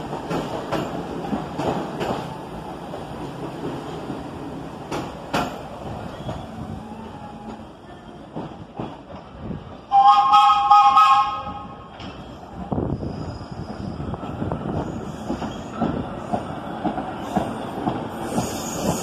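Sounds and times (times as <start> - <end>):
subway train rumbling: 0.0 - 19.0
train horn blast: 9.9 - 11.9.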